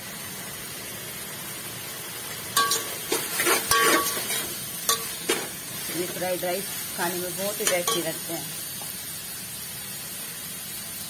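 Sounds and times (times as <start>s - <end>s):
low sizzle of frying: 0.0s - 11.0s
metal spatula scraping a pot: 2.6s - 6.4s.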